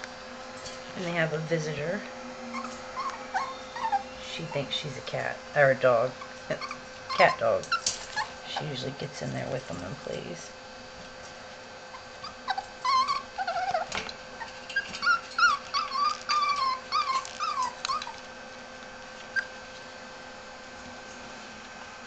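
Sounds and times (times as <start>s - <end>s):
puppies yipping and whining: 2.4s - 5.0s, 6.1s - 8.6s, 11.9s - 18.4s, 19.2s - 19.8s.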